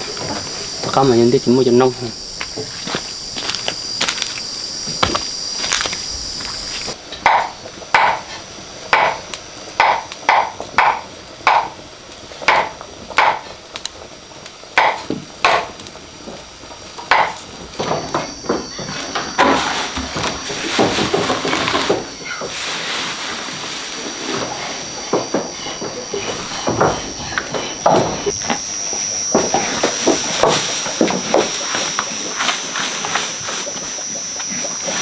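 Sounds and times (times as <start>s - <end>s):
rustling of leafy greens: 0.0s - 7.0s, 16.2s - 35.0s
insect buzzing: 0.0s - 35.0s
chopping strokes on wood: 7.2s - 9.2s, 9.8s - 11.8s, 12.4s - 13.5s, 14.8s - 15.8s.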